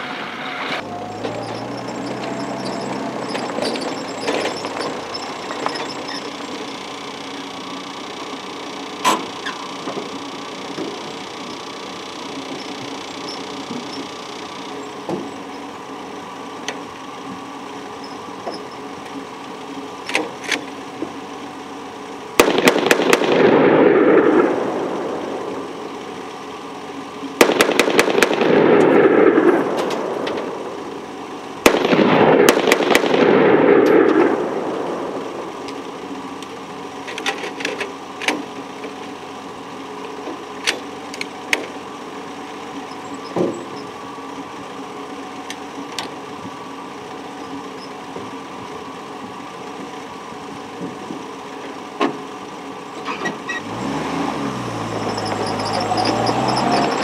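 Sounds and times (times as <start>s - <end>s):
jeep engine idling: 0.0s - 57.0s
machine gun bursts: 22.4s - 24.4s, 27.4s - 29.5s, 31.6s - 34.3s
gunfire echo: 22.4s - 24.7s, 27.4s - 29.8s, 31.6s - 35.2s.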